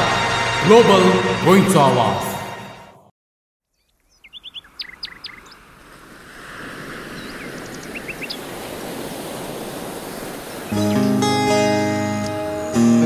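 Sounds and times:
birds chirping: 0:03.6 - 0:13.0
surf breaking on a beach: 0:05.5 - 0:12.0.

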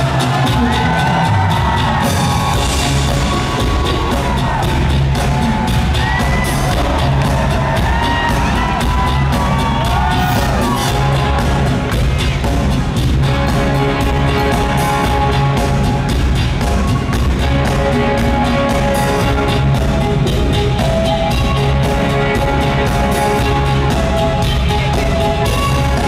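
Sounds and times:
live rock band playing: 0:00.0 - 0:26.0.

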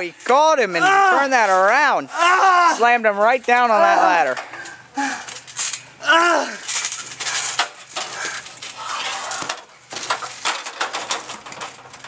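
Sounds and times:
aluminium ladder clattering: 0:02.8 - 0:12.0.

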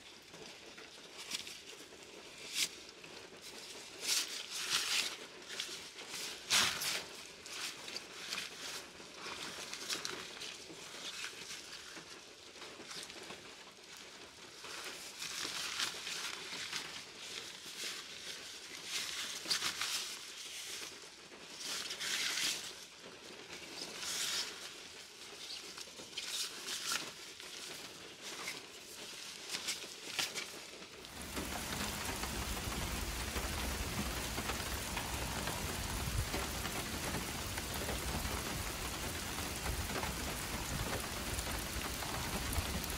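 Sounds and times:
rustling and crinkling: 0:00.0 - 0:42.9
heavy rain falling: 0:31.0 - 0:42.9.

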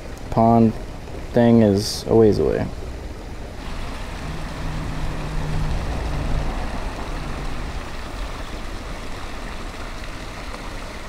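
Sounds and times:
background traffic rumble: 0:00.0 - 0:11.0
truck rumbling past: 0:03.6 - 0:10.2.

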